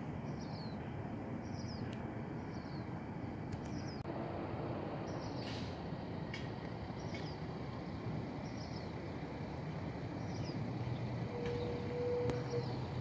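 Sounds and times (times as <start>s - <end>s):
distant jet aircraft rumble: 0.0s - 13.0s
brief steady tone: 11.3s - 12.6s.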